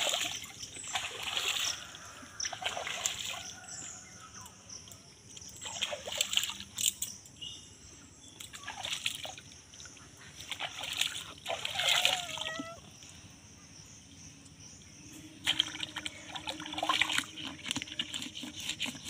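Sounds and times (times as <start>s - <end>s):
water splashing: 0.0s - 3.7s, 5.6s - 6.9s, 8.5s - 12.8s, 15.4s - 19.0s.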